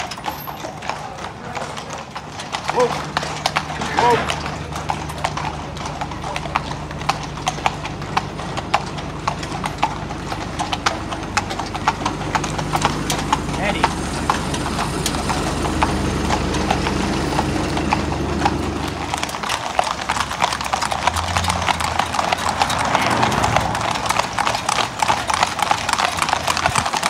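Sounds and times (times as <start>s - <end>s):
hooves clip-clopping on tarmac: 0.0s - 27.0s.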